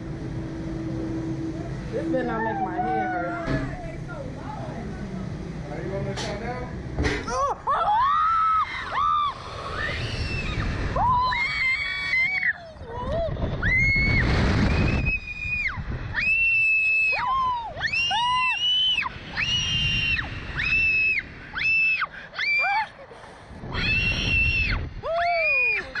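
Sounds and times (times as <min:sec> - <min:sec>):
people screaming: 0:02.2 - 0:03.8, 0:07.3 - 0:23.0, 0:23.7 - 0:26.0
wind noise on microphone: 0:08.3 - 0:22.2, 0:23.4 - 0:26.0.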